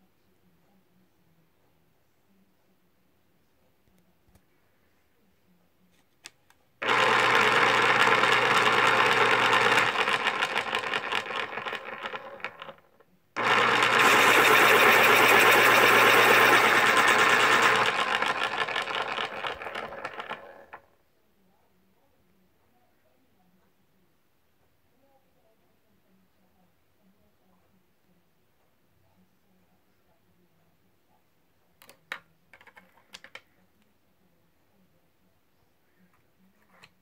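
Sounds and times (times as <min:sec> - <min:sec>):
electric pencil sharpener grinding: 0:06.8 - 0:20.8.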